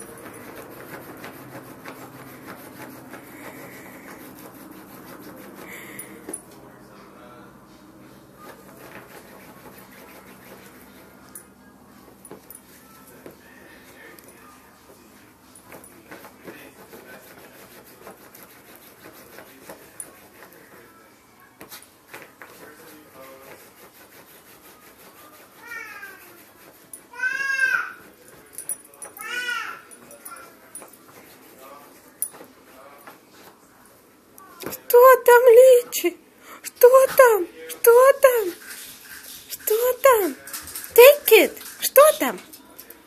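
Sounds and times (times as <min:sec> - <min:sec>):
puppy scratching fabric bed: 0:00.0 - 0:06.5, 0:08.0 - 0:34.0, 0:34.6 - 0:35.9.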